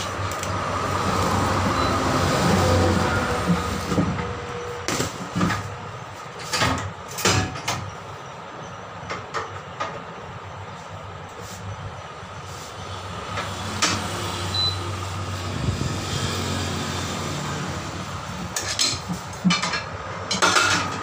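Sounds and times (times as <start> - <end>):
metal clanks and knocks: 6.4 - 8.0, 18.5 - 21.0.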